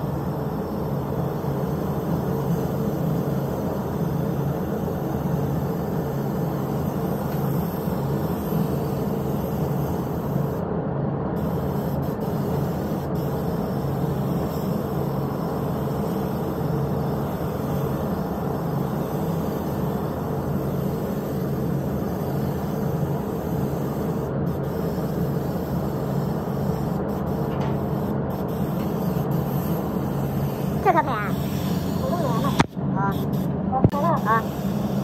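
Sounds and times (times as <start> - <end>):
ventilation running: 0.0 - 35.0
paint spray gun hissing: 11.4 - 35.0.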